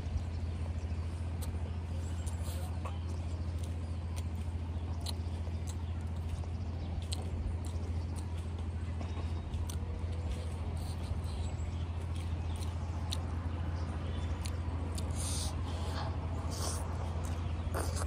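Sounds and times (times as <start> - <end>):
low hum: 0.0 - 18.0
person chewing rice: 0.8 - 18.0
lip smacks and wet clicks: 1.4 - 8.7, 9.6 - 15.9, 16.5 - 18.0.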